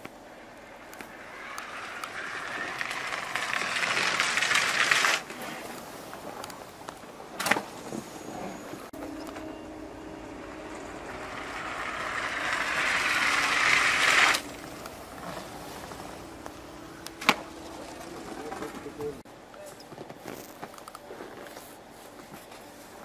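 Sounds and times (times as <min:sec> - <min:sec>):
skis hissing down track: 0:00.0 - 0:08.9, 0:10.4 - 0:19.2.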